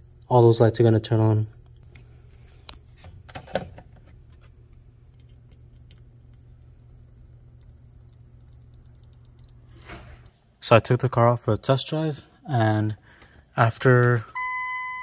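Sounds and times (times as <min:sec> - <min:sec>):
crickets trilling: 0:00.0 - 0:10.3
low hum: 0:00.0 - 0:10.3
faint clicks: 0:04.7 - 0:10.3.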